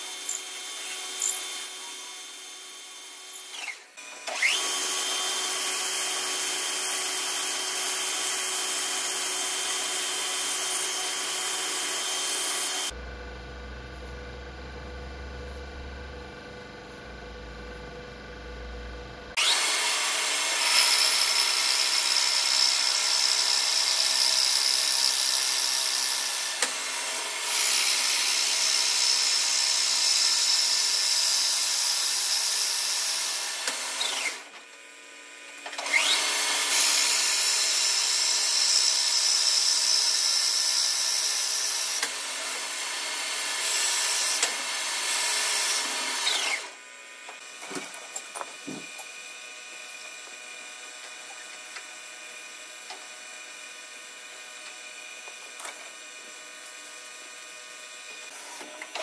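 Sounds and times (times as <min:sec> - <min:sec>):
lathe cutting wood rasp: 0:19.4 - 0:26.3.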